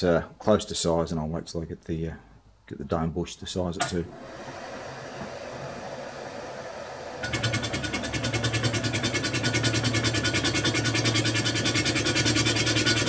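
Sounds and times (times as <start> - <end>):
boring bar cutting steel: 3.8 - 13.0
milling machine spindle running: 4.0 - 13.0.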